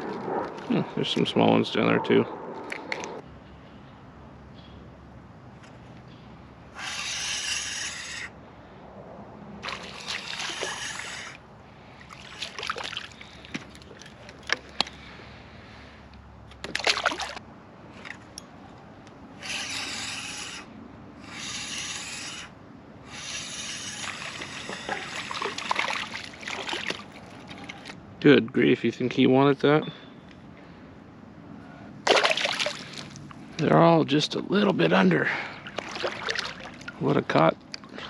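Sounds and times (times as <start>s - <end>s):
fishing reel cranking rasp: 19.4s - 22.5s.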